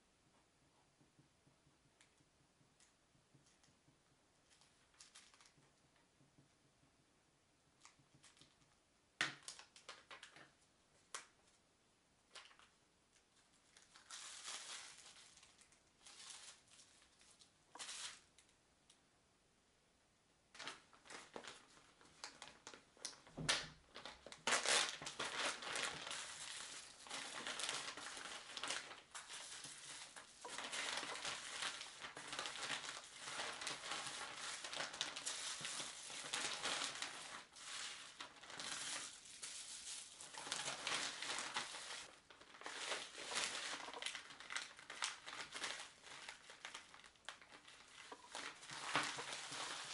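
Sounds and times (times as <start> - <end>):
plastic bag crinkling: 4.5 - 5.6, 13.5 - 18.5, 20.6 - 49.9.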